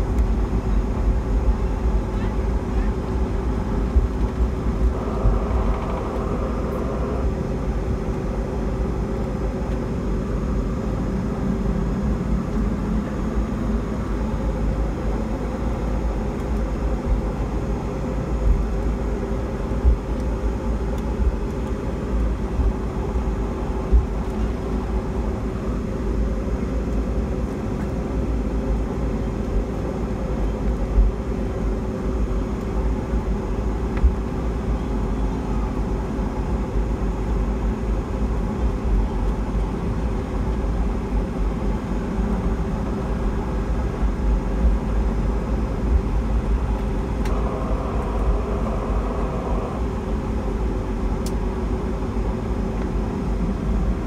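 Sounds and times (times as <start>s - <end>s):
jet engines humming in cabin: 0.0s - 54.0s.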